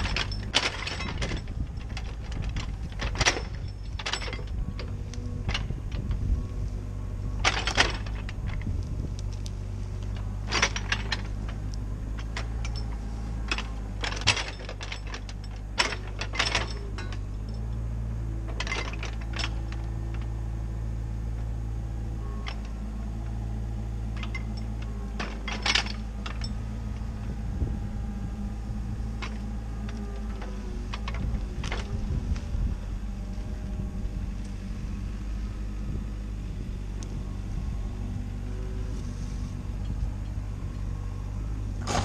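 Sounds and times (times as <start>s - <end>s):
metal clanks: 0.0s - 6.2s, 7.4s - 9.4s, 10.0s - 17.8s, 18.5s - 20.3s, 22.4s - 27.4s
diesel engine running: 0.0s - 42.0s.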